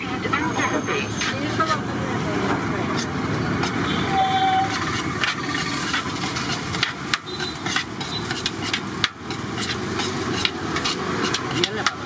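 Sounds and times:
roadside traffic noise: 0.0 - 12.0
ladle clinking against metal pot: 4.7 - 12.0.

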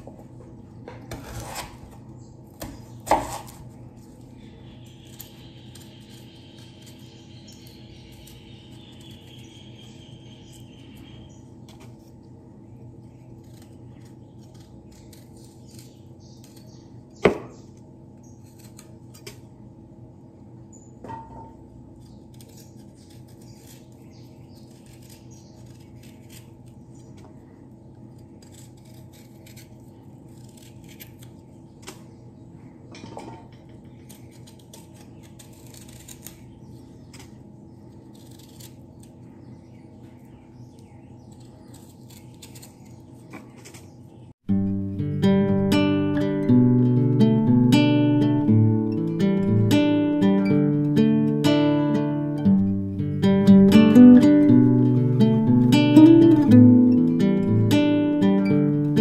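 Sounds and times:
steady low hum: 0.0 - 59.0
knife scraping root skin: 0.9 - 12.2, 13.1 - 19.5, 21.9 - 27.3, 27.9 - 32.1, 33.8 - 39.4, 41.1 - 44.0.

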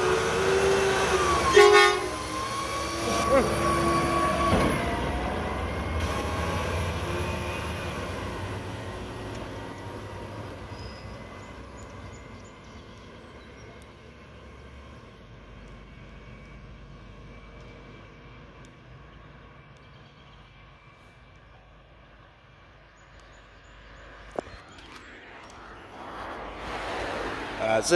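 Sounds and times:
diesel truck engine rumble: 0.0 - 22.9
truck horn note: 1.2 - 2.4.

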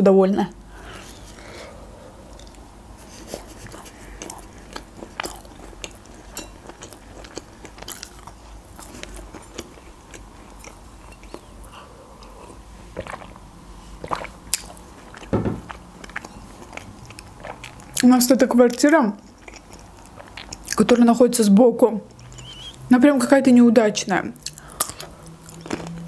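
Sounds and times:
chewing crunches: 3.3 - 13.4, 14.0 - 18.1, 19.2 - 20.9, 24.4 - 26.0
wet mouth clicks: 22.1 - 22.8.

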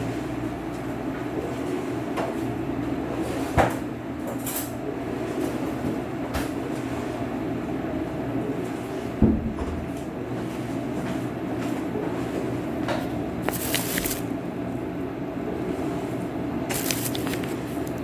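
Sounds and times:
machine hum: 12.8 - 18.0.

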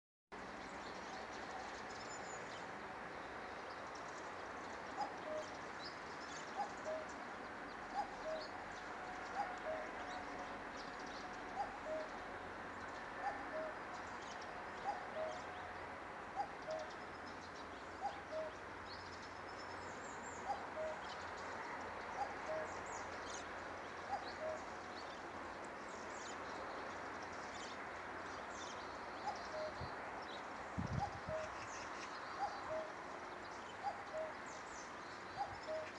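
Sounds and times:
cuckoo calling: 5.0 - 5.6, 6.6 - 7.2, 7.9 - 8.5, 9.3 - 10.0, 11.6 - 12.1, 13.2 - 13.8, 14.8 - 15.5, 18.0 - 18.6, 20.4 - 21.0, 22.2 - 22.8, 24.1 - 24.7, 29.2 - 29.8, 30.9 - 31.7, 32.4 - 33.0, 33.8 - 34.4, 35.4 - 35.9
small birds chirping: 22.1 - 35.9.

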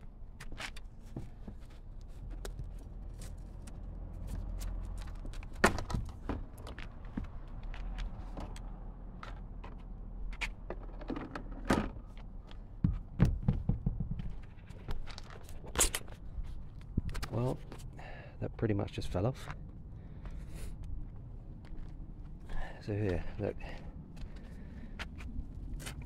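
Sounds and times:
steady low rumble: 12.0 - 26.0.

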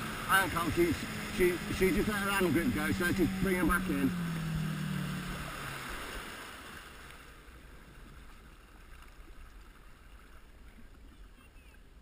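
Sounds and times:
jet ski engine: 0.0 - 8.8.

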